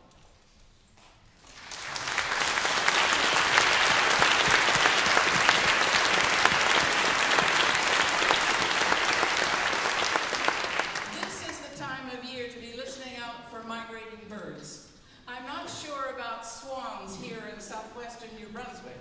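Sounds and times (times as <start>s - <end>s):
audience applauding: 1.4s - 11.6s.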